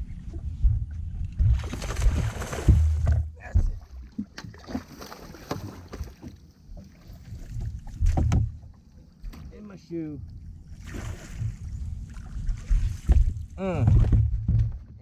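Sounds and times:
wind rumbling on microphone: 0.0s - 3.9s, 10.2s - 15.0s.

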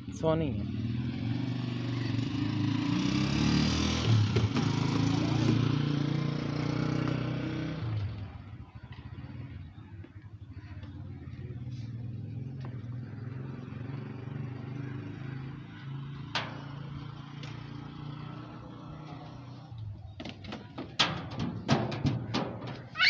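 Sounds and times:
vehicle engine humming: 6.7s - 23.0s.

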